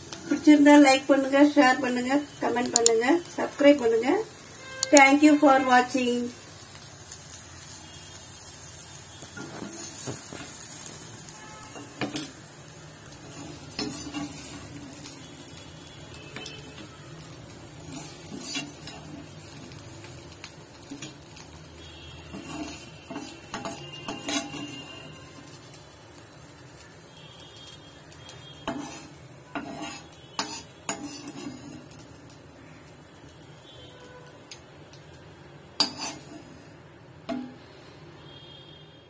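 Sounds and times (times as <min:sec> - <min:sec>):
faint sizzle: 0:00.0 - 0:39.0
utensil scraping a pan: 0:09.4 - 0:10.6, 0:13.2 - 0:15.0, 0:17.8 - 0:19.3, 0:22.3 - 0:25.2, 0:28.6 - 0:32.0, 0:35.8 - 0:36.7.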